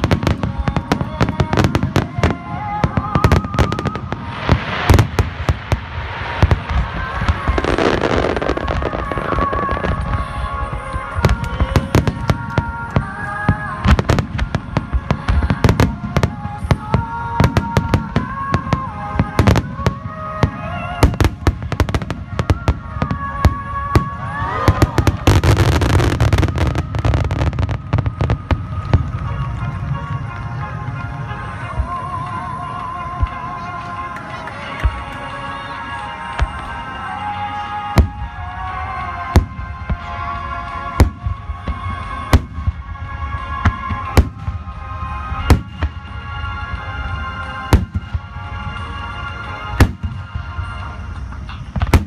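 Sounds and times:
fireworks launching and bursting: 0:00.0 - 0:52.0
music playing: 0:00.0 - 0:52.0.

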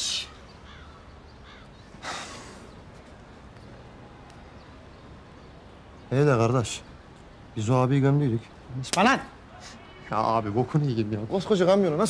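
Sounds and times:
man sniffing: 0:02.0 - 0:02.7.

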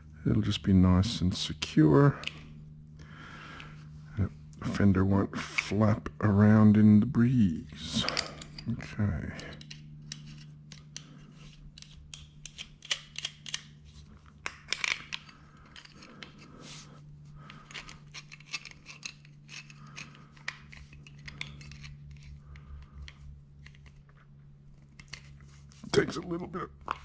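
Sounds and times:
steady low hum: 0:00.0 - 0:27.0
metallic clicks and scrapes of hand tool: 0:17.5 - 0:24.0.

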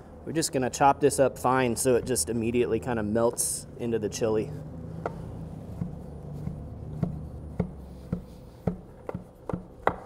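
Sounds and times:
knife chopping on wooden board: 0:05.8 - 0:10.0.

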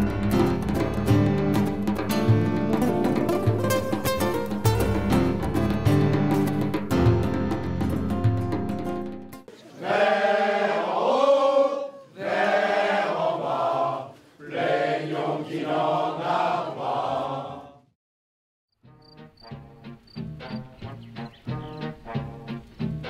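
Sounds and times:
guitar-led music: 0:00.0 - 0:09.5, 0:18.8 - 0:23.0
plucked music: 0:00.0 - 0:09.5, 0:18.8 - 0:23.0
group singing unaccompanied: 0:09.6 - 0:18.0.

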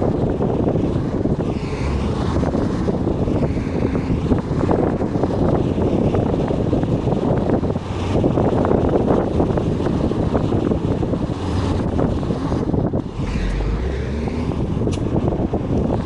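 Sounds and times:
bus engine rumble: 0:00.0 - 0:16.0
wind buffeting microphone: 0:00.0 - 0:16.0.

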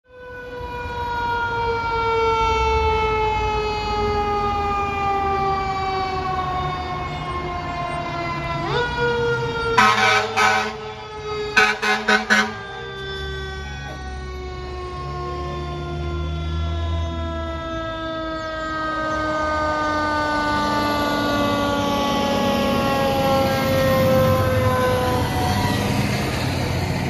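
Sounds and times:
fire engine siren wailing: 0:00.0 - 0:27.0
truck engine rumbling: 0:01.8 - 0:27.0
long horn blast: 0:09.7 - 0:14.2
short horn blasts: 0:09.8 - 0:10.8, 0:11.6 - 0:12.8.

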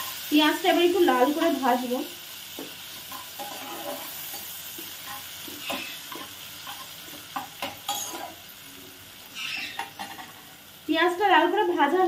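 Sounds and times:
onions sizzling in oil: 0:00.0 - 0:12.0
metal spatula scraping a pot: 0:03.1 - 0:08.4, 0:09.4 - 0:10.4.

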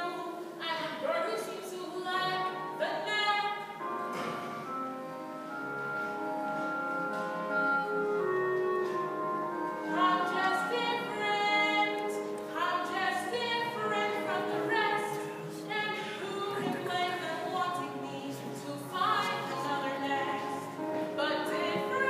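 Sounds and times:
musical accompaniment: 0:02.2 - 0:22.0
girl singing: 0:09.9 - 0:22.0.

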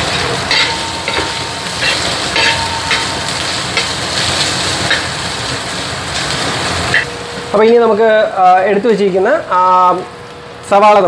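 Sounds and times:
ingredients sizzling in oil: 0:00.0 - 0:07.7.

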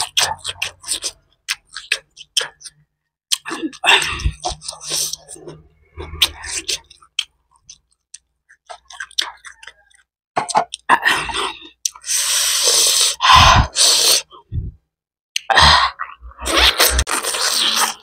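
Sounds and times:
chewing with wet smacks: 0:00.0 - 0:10.9.

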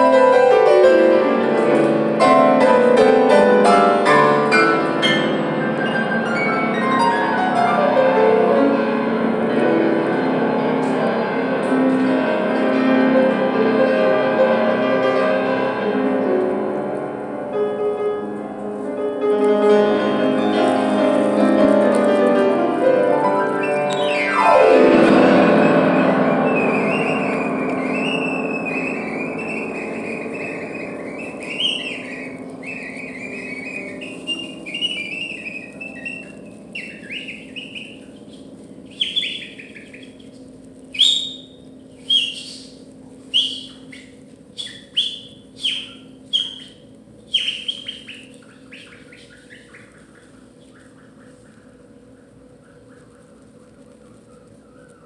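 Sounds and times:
grand piano playing: 0:00.0 - 0:54.5
piano downward sweep: 0:00.0 - 0:55.0
bird-like chirping whistles: 0:23.5 - 0:24.5, 0:25.4 - 0:51.6.

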